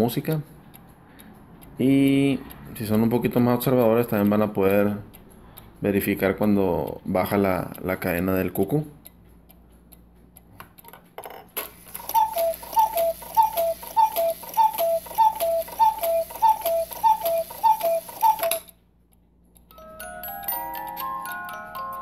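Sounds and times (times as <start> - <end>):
faint clock ticking: 0.0 - 22.0
clock mechanism whirring: 11.6 - 18.8
cuckoo clock two-note call: 11.9 - 18.7.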